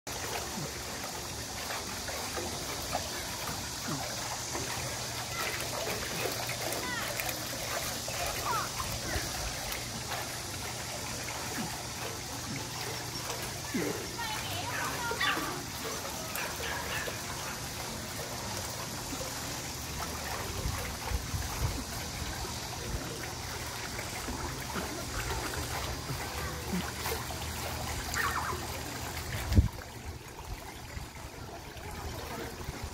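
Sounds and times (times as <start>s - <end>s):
dog paddling splashes: 0.1s - 32.9s
pool water trickling and lapping: 0.1s - 32.9s.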